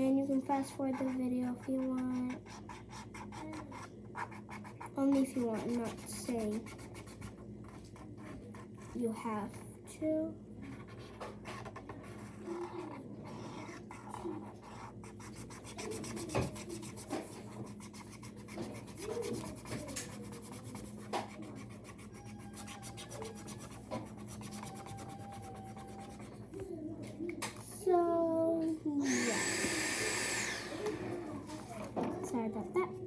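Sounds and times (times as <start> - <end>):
marker rubbing on paper: 0.6 - 9.0, 10.7 - 26.6.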